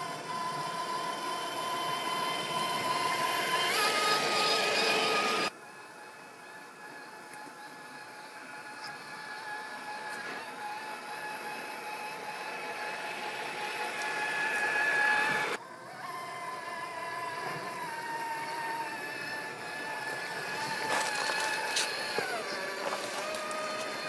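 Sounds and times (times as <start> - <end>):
toy car motor and gears whining: 0.0 - 24.0.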